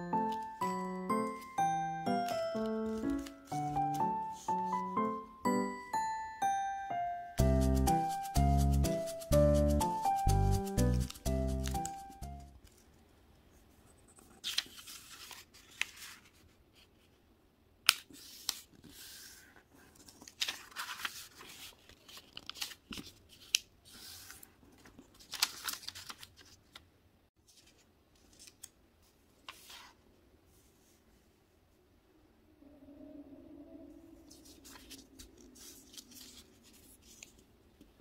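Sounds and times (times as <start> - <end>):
paper rustling and crinkling: 2.2 - 4.6, 14.2 - 16.9, 17.9 - 30.0, 34.3 - 37.5.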